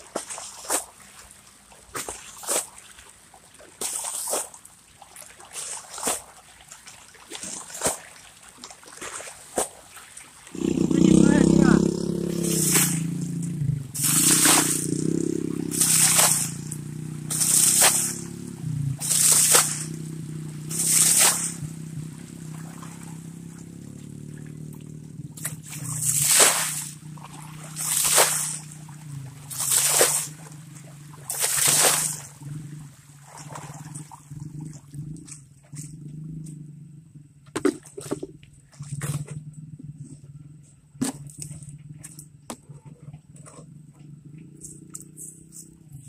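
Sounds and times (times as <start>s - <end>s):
water splashing onto gravel: 3.7s - 23.6s, 25.4s - 32.4s
low steady hum: 10.6s - 46.0s.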